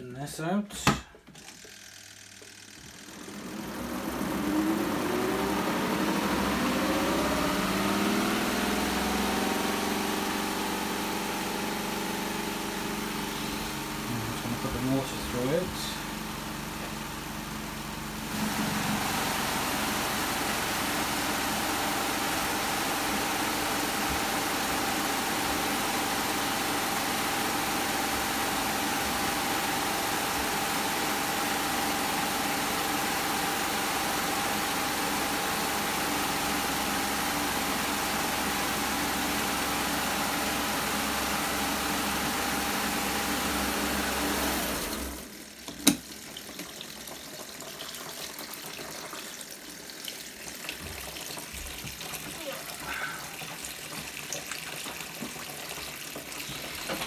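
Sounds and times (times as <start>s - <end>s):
spin dryer humming and whining: 0.8s - 57.0s.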